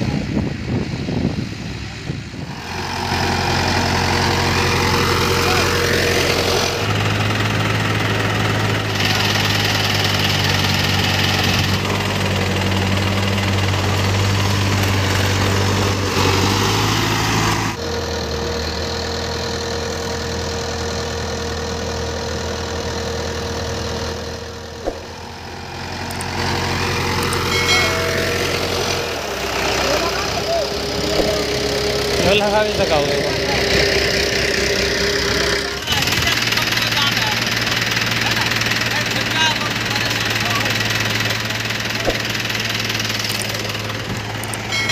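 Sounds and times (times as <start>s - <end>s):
tractor diesel engine running: 0.0s - 44.9s
tractor wheel spinning in mud: 2.7s - 17.7s, 24.5s - 44.9s.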